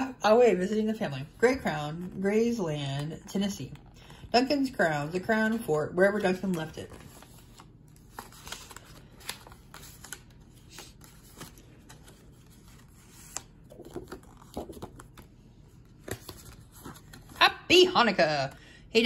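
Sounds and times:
paper and card rustling: 1.2 - 17.5.

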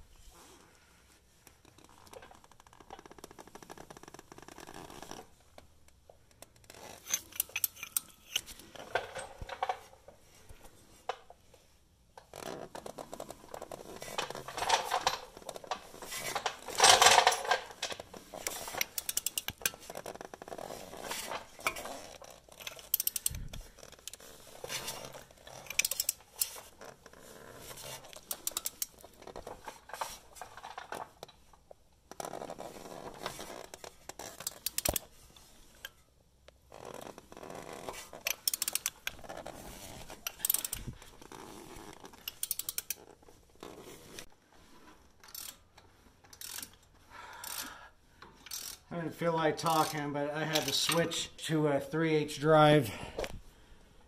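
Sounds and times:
hand ratchet clicking: 6.4 - 8.6, 14.1 - 24.2, 24.8 - 26.9, 27.8 - 29.0, 34.1 - 35.1, 37.7 - 39.4, 40.2 - 43.1, 45.2 - 45.6, 46.3 - 46.8, 47.4 - 48.9.

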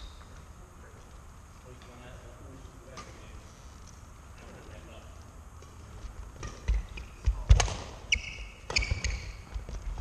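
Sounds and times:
rackets striking shuttlecock: 6.4 - 9.5
shoes squeaking on court: 6.4 - 10.0.

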